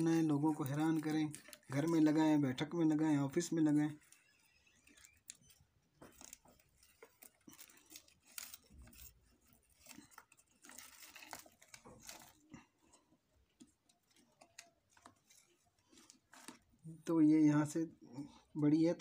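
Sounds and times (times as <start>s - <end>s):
plastic crinkling and rustling: 0.0s - 17.1s.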